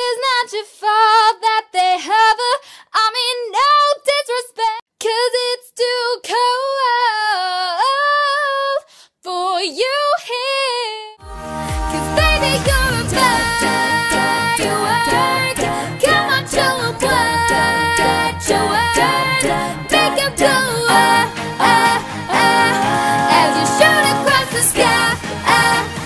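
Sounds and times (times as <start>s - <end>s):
woman singing solo: 11.2s - 25.2s.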